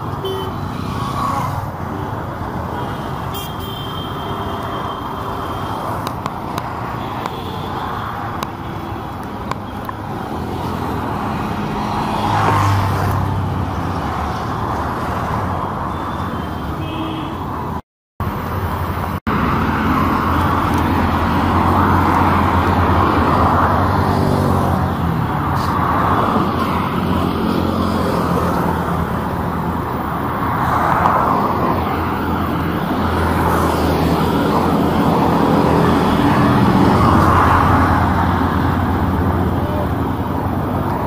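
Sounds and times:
road traffic passing: 0.0s - 41.0s.

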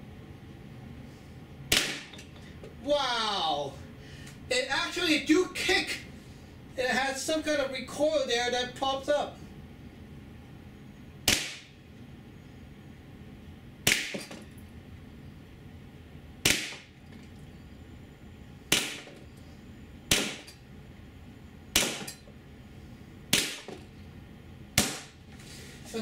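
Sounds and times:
paintball pistol shots: 1.7s - 2.2s, 11.3s - 11.7s, 13.8s - 14.3s, 16.4s - 16.9s, 18.7s - 19.1s, 20.1s - 20.5s, 21.8s - 22.1s, 24.8s - 25.2s.

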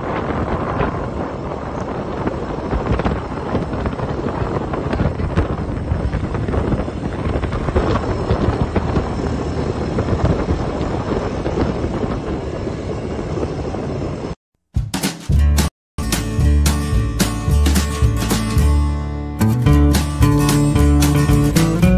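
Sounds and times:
wind buffeting microphone: 0.0s - 14.4s.

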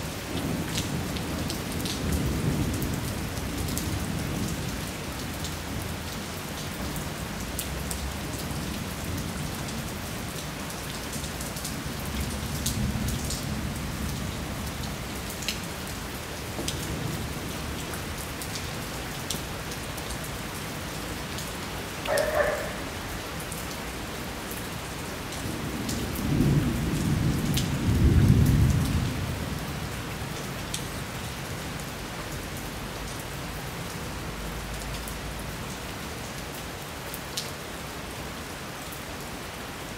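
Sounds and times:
heavy rain falling: 0.0s - 39.9s
thunder rumbling: 25.6s - 29.4s.

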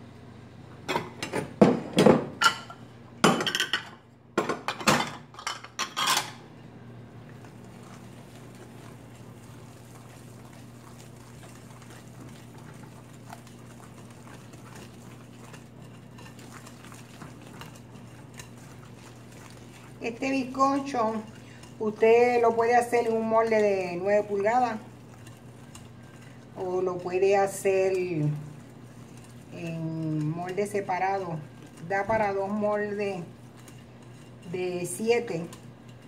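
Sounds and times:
steady low hum: 5.3s - 36.0s
soft stirring of batter: 6.6s - 36.0s
whisk clattering in glass bowl: 10.9s - 26.2s, 33.0s - 36.0s.

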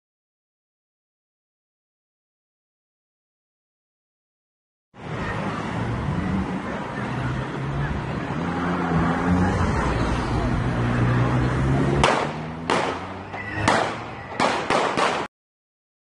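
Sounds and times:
voices: 5.0s - 15.0s
street traffic: 5.0s - 15.3s
gunshots: 12.0s - 15.3s.

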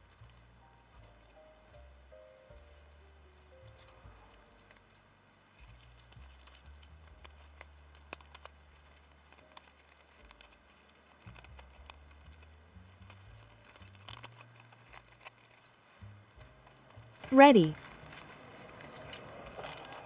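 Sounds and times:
fingers handling plastic ornament: 3.7s - 18.3s.

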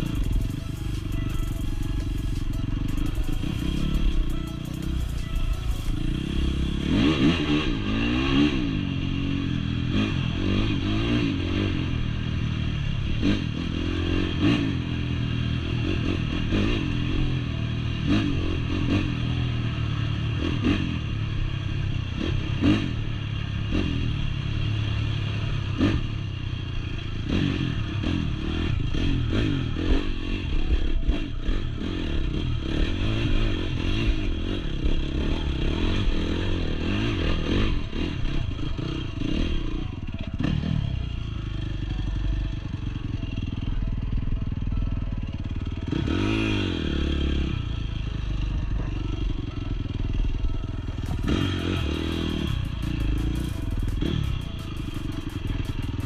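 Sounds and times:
dirt bike engine revving: 0.0s - 21.2s, 27.2s - 41.8s, 49.0s - 56.0s.

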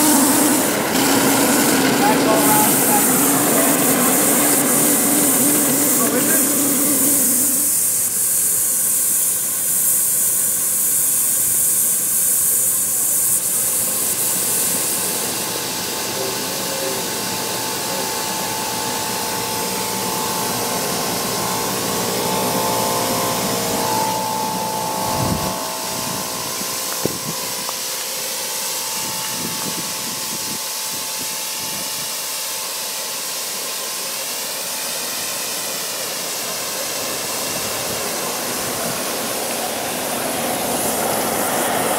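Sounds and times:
steam whistle tone: 0.0s - 9.1s, 9.8s - 33.7s
steam hissing from boiler: 0.0s - 41.9s.

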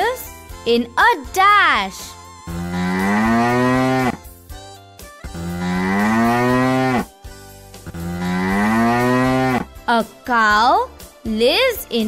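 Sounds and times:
cow mooing: 2.5s - 4.2s, 5.4s - 7.1s, 7.9s - 9.7s.

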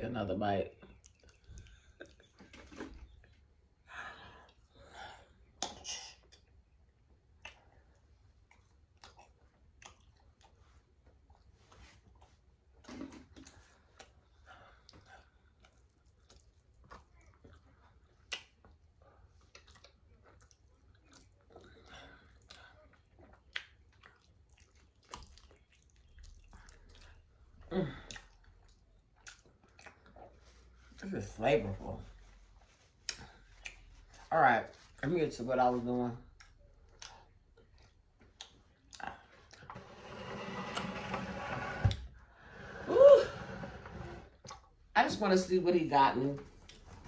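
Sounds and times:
wet chewing: 0.8s - 2.4s, 7.2s - 12.6s, 13.4s - 31.0s, 32.9s - 35.0s, 36.2s - 39.8s
wet mouth clicks: 5.6s - 6.5s, 7.4s - 7.8s, 8.5s - 10.5s, 18.2s - 18.8s, 33.0s - 33.9s.

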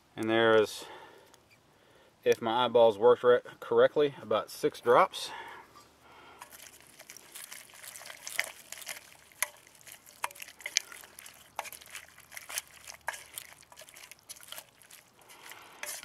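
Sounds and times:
spoon stirring in pot: 6.4s - 16.0s.

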